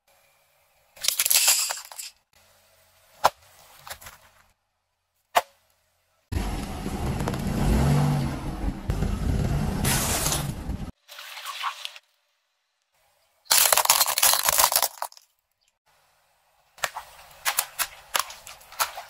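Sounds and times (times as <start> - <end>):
low rumble: 6.3 - 10.9
wooden pencils cracking and splintering: 13.5 - 15.4.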